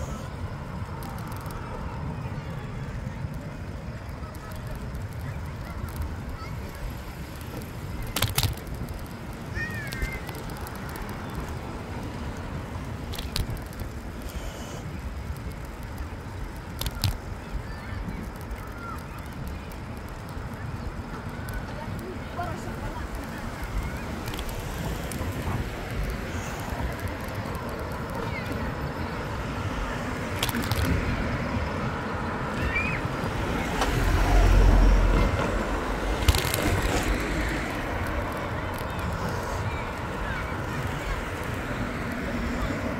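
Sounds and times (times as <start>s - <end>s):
rumble of moving bicycle: 0.0s - 42.9s
tyre noise on road: 0.0s - 42.9s
wind buffeting microphone: 0.0s - 42.9s
sharp clicks: 7.3s - 22.1s, 22.7s - 28.6s, 29.7s - 31.4s, 33.6s - 39.3s.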